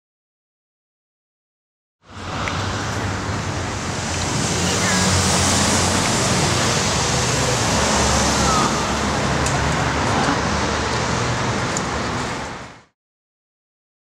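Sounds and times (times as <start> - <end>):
street traffic hum: 2.0 - 13.0.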